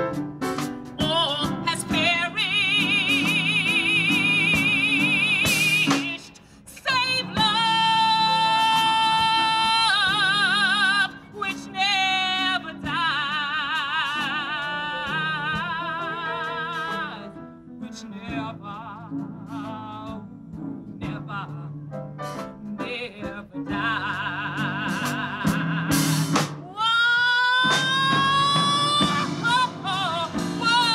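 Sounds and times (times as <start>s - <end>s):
piano accompaniment: 0.0s - 30.9s
woman singing with vibrato: 1.0s - 21.8s, 22.6s - 30.9s.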